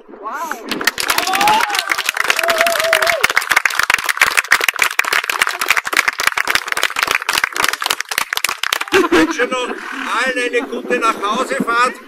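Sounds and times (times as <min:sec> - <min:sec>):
crowd applauding: 0:00.7 - 0:09.2.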